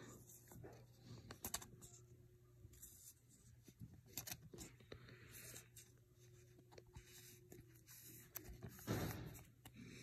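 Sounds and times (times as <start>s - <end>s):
plastic card sleeve rustling: 2.7s - 9.6s.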